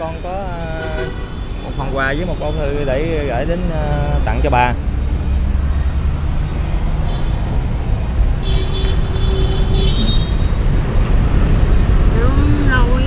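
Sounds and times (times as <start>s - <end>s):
street traffic rumble: 0.0s - 13.0s
vehicle horn: 0.8s - 1.9s, 8.4s - 10.6s.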